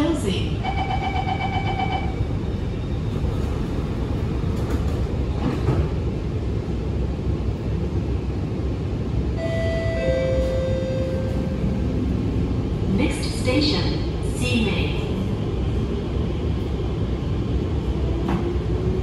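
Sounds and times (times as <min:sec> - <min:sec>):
low rumble inside train: 0:00.0 - 0:19.0
train doors sliding shut: 0:03.1 - 0:06.1, 0:09.7 - 0:11.8, 0:18.0 - 0:19.0.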